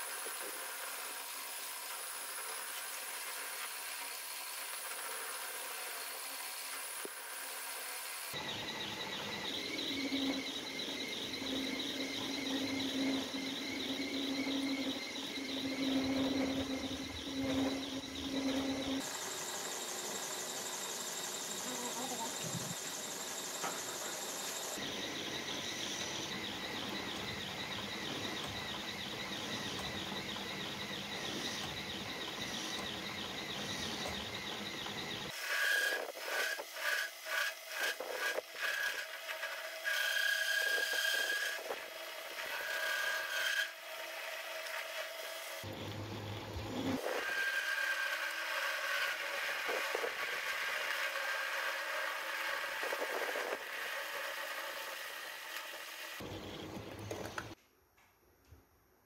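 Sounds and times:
cutting squeal: 0.0 - 45.8, 46.7 - 57.6
faint high whine: 0.0 - 59.0
metal lathe cutting: 22.3 - 57.6.

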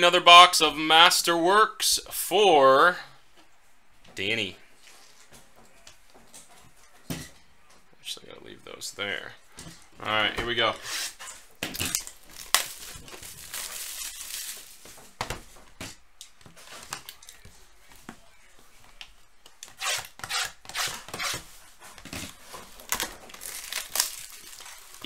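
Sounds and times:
plastic wrap tearing and crinkling: 10.8 - 15.2, 22.2 - 25.0.

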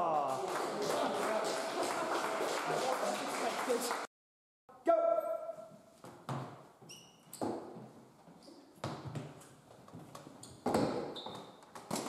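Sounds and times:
brief high squeaks: 6.9 - 7.4.

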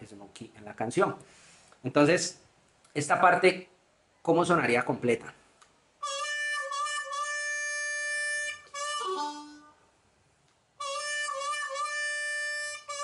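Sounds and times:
harmonica playing blues: 6.0 - 9.9, 10.8 - 13.0.

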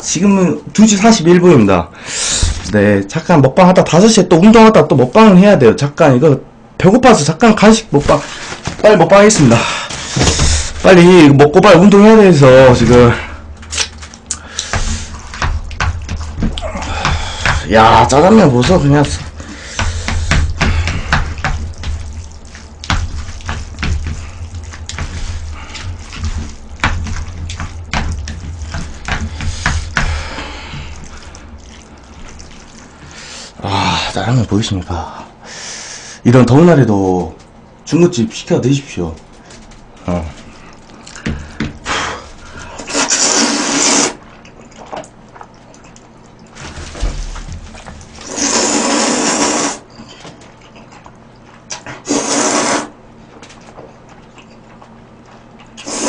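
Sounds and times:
noodles squelching and slapping: 7.5 - 34.4, 39.0 - 56.0
chewing and mouth noises: 13.6 - 18.3, 18.9 - 33.5, 40.4 - 52.7, 53.3 - 56.0
loud noodle slurps: 42.8 - 45.0, 48.2 - 49.9, 51.7 - 53.0, 55.8 - 56.0.

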